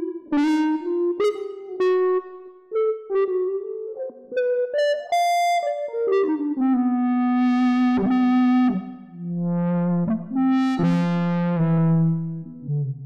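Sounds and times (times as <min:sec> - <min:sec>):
processed electric guitar notes: 0:00.0 - 0:13.0.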